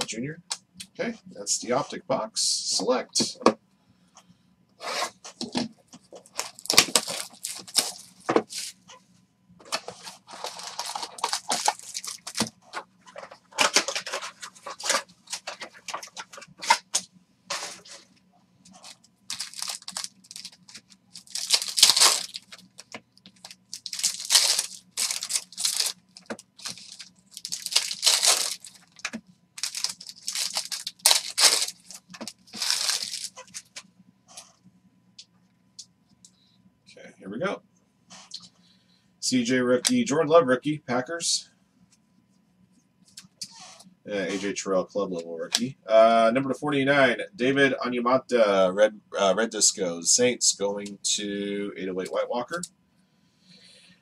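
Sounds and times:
faint steady hum: 0.0 - 54.0
card packs being ripped open: 6.4 - 8.7, 10.3 - 12.5, 19.3 - 22.6, 23.4 - 33.6.

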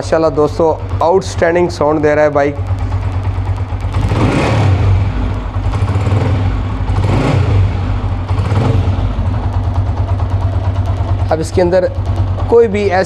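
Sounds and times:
motorcycle engine idling: 0.0 - 13.0.

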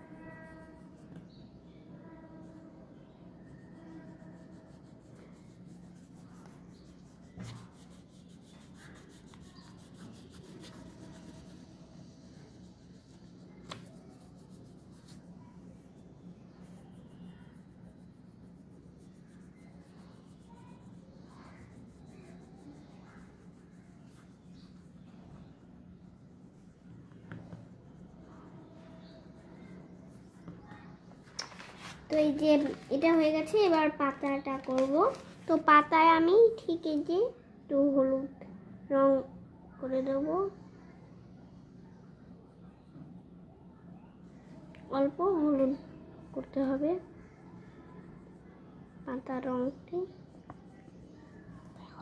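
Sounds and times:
steady low hum: 0.0 - 31.2
crayon scratching on paper: 3.4 - 30.5.

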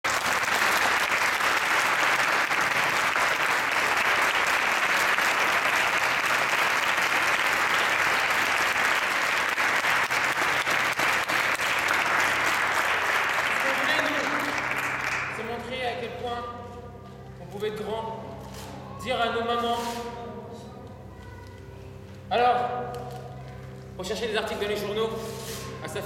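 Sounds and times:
audience applauding: 0.0 - 15.5.

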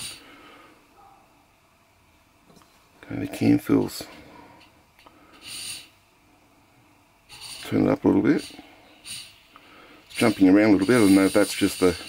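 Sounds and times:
gas burner hissing: 0.0 - 0.8, 3.8 - 6.1, 7.0 - 12.0.

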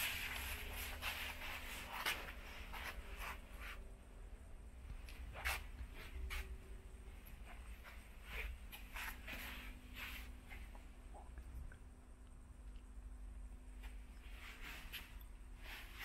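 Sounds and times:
footstep scuffs and rustles: 0.0 - 11.1, 13.7 - 16.0
low room rumble: 0.0 - 16.0.

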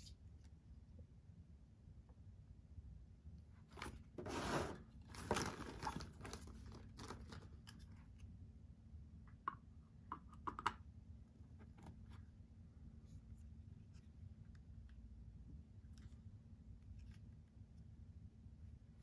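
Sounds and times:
plastic packaging rustling: 5.1 - 7.7.

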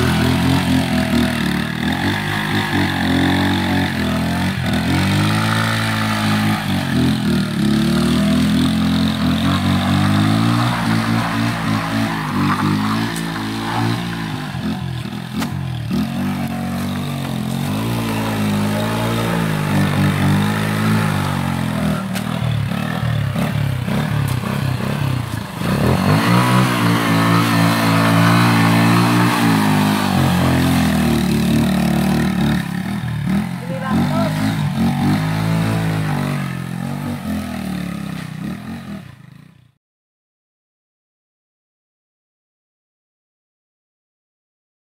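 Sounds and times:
small motorcycle engine revving: 0.0 - 39.8.

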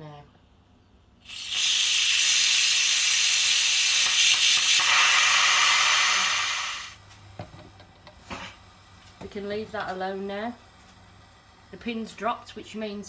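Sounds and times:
pressure cooker steam hissing: 1.2 - 7.0.

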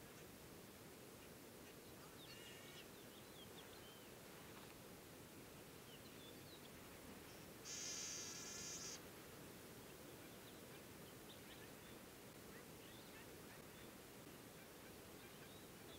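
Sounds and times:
faint bird chirps: 1.6 - 4.2, 5.8 - 9.0
finch buzzy song: 7.6 - 9.0.

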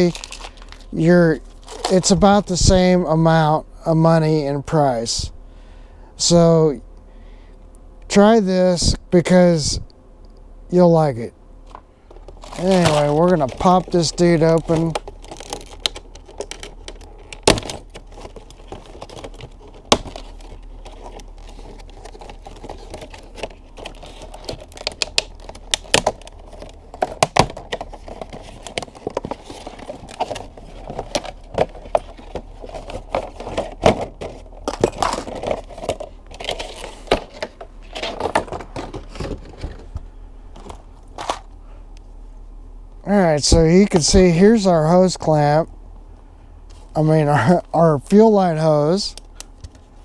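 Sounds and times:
plastic packaging crinkling: 0.0 - 2.7, 11.7 - 41.6.

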